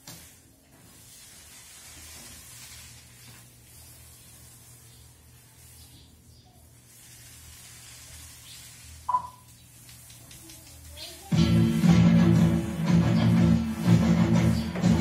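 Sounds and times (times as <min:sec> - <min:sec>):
paint roller on wall: 0:00.0 - 0:15.0.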